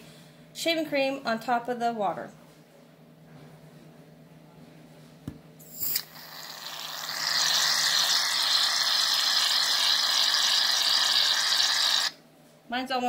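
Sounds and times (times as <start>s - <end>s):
aerosol can spraying hiss: 5.7s - 12.1s.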